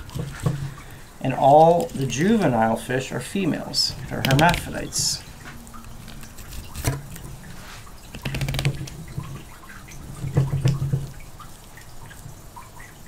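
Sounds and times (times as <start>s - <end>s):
wet clicks and squelches: 0.0s - 2.7s, 3.9s - 13.0s
knife filleting fish on wet board: 3.9s - 5.1s, 5.8s - 9.5s.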